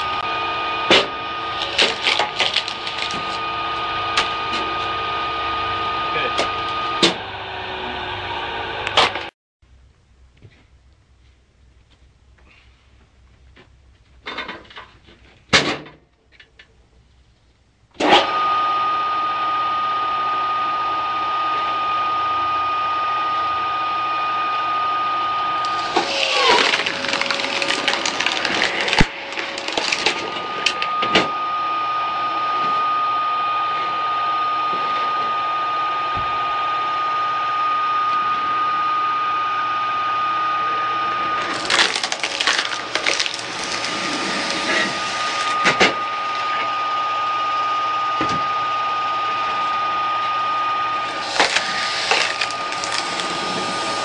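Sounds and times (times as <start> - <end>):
wood splitting cracks: 0.9 - 3.4, 25.6 - 30.9, 41.4 - 44.1, 51.1 - 53.4
electric motor whining: 18.1 - 54.0.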